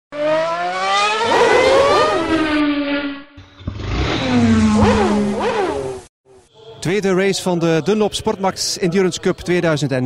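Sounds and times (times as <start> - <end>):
racing engines revving past: 0.1 - 6.0.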